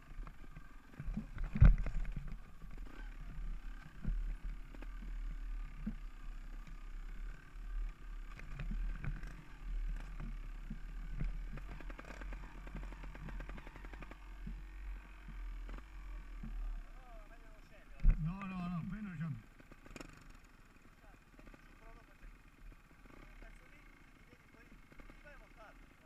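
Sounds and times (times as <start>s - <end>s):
motorcycle rattling over stones: 0.0s - 17.0s.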